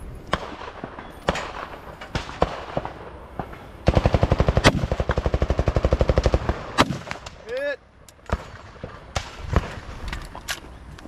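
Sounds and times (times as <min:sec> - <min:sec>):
rifle shots: 0:00.2 - 0:07.4, 0:08.2 - 0:10.0.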